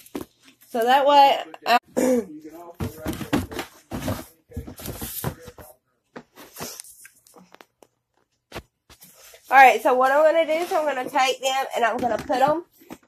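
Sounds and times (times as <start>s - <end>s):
containers rustling and scraping: 2.6s - 7.7s, 8.5s - 13.0s.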